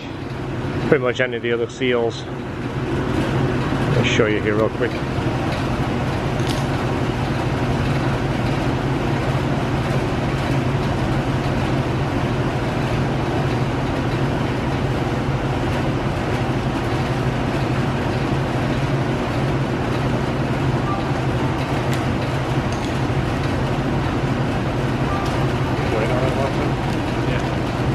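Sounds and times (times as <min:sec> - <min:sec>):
low mechanical drone: 0:00.0 - 0:27.9.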